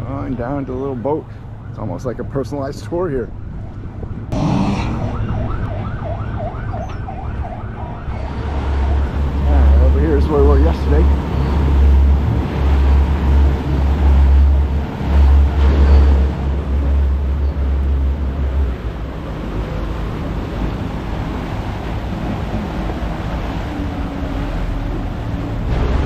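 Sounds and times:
boat engine: 0:00.0 - 0:26.0
wind buffeting microphone: 0:03.3 - 0:26.0
boat wake washing: 0:04.2 - 0:26.0.

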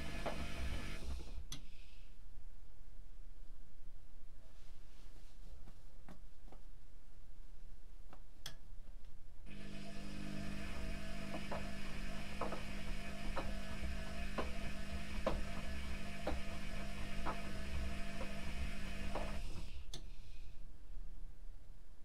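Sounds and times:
washing machine drum humming: 0:00.0 - 0:01.4, 0:09.5 - 0:19.8.

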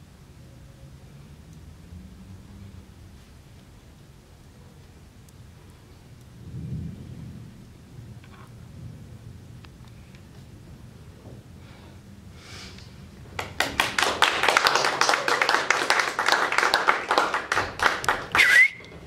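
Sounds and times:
audience clapping: 0:13.2 - 0:19.0
loud high cry: 0:18.3 - 0:18.9.

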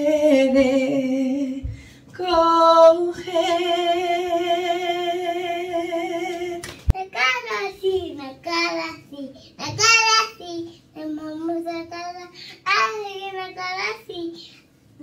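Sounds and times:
woman singing without words: 0:00.0 - 0:06.7.

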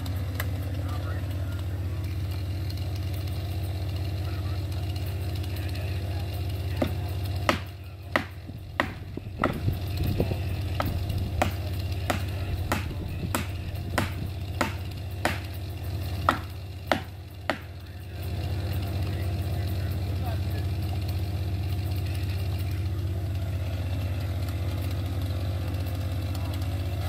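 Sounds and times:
chainsaw idling: 0:00.0 - 0:27.0
sharp knocks: 0:06.8 - 0:09.8, 0:10.8 - 0:15.6, 0:16.3 - 0:17.7.

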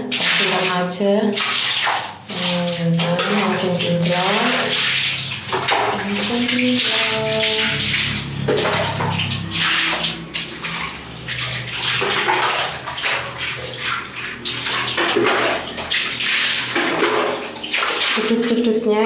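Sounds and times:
brush scrubbing floor: 0:00.0 - 0:19.0
water splashing on tiled floor: 0:00.0 - 0:19.0.

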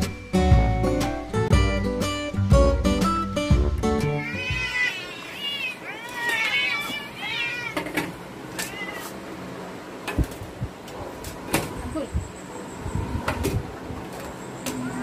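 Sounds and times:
cats meowing: 0:04.2 - 0:09.3.

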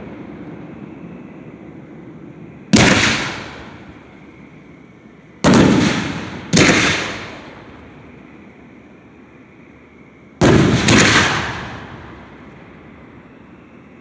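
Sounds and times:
fireworks booming: 0:00.0 - 0:04.5, 0:05.3 - 0:08.1, 0:10.4 - 0:13.0.

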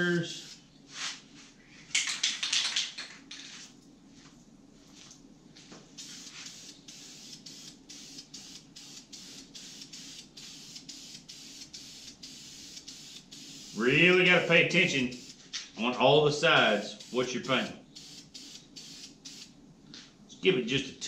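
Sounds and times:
spray paint can hissing: 0:00.2 - 0:00.6, 0:06.0 - 0:14.0, 0:14.8 - 0:15.4, 0:16.6 - 0:19.5.

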